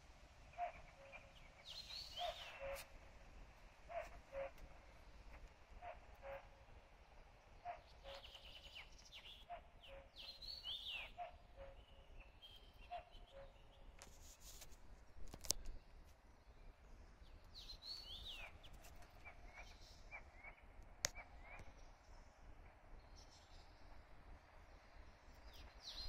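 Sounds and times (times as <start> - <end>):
songbirds whistling: 0.6 - 2.8, 7.7 - 13.6.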